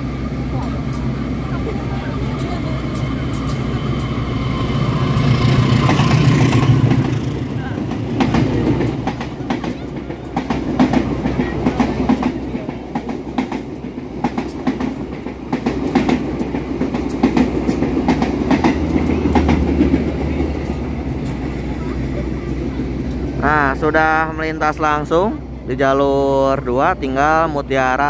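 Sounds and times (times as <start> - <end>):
low train rumble: 0.0 - 28.0
train wheels clacking over rail joints: 4.9 - 21.6.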